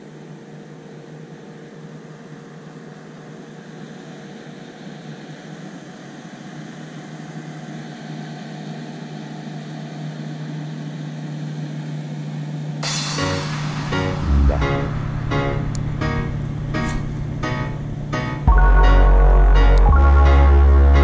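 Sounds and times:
boat motor humming: 14.2s - 21.0s.

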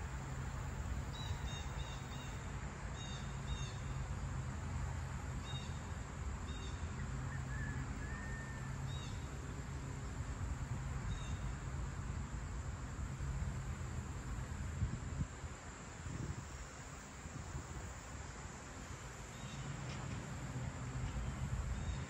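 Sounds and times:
faint short whistle: 7.3s - 8.8s.

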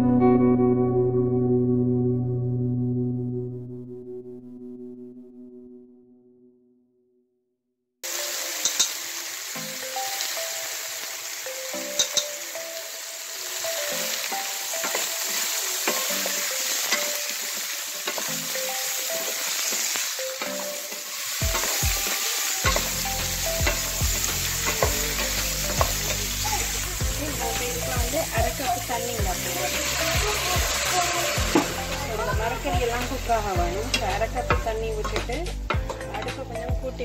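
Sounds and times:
vegetables sizzling in oil: 8.0s - 36.6s
spatula scraping a pan: 19.2s - 26.8s.

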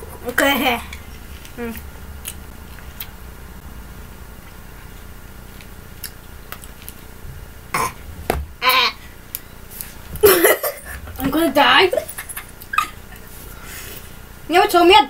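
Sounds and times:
low hum: 0.0s - 14.5s
person vocal noise: 8.6s - 9.0s.

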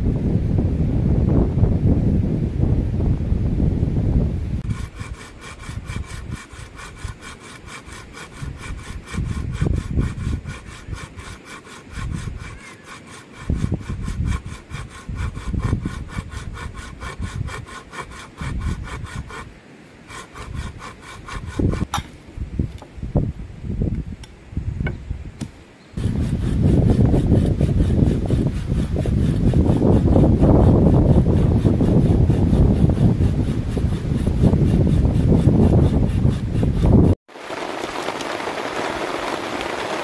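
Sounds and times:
wind buffeting microphone: 0.0s - 12.6s, 13.2s - 19.5s, 20.1s - 40.0s
hand saw cutting bamboo: 4.6s - 22.2s, 26.0s - 37.2s.

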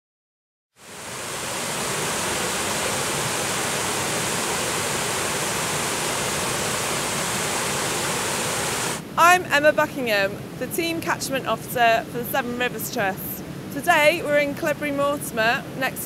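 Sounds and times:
water rushing over weir: 0.8s - 9.5s.

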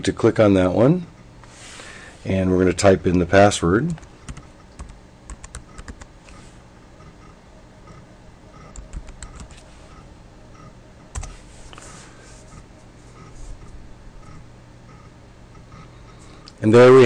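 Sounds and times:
laptop keyboard typing: 3.9s - 6.1s, 7.9s - 9.7s, 10.6s - 11.4s.

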